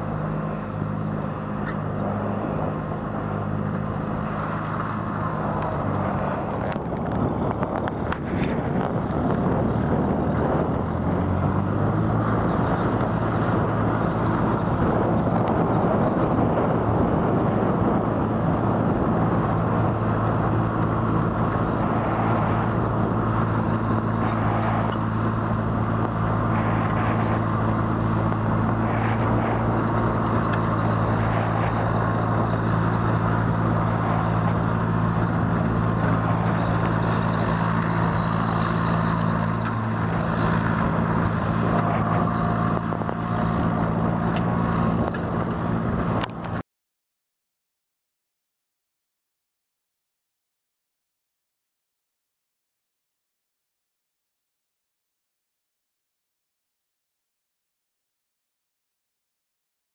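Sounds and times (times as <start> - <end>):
tractor diesel engine under load: 0.0 - 46.6.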